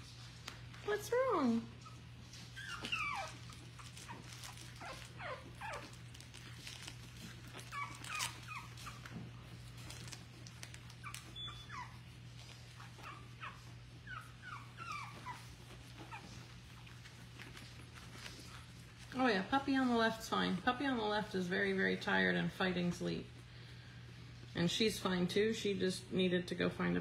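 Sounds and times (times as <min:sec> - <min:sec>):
puppy whimpering: 0:01.3 - 0:19.2.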